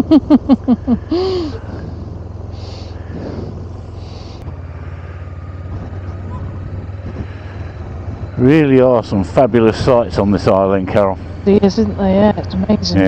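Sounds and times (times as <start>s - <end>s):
person laughing: 0.0s - 1.6s
motorcycle engine droning: 0.0s - 13.0s.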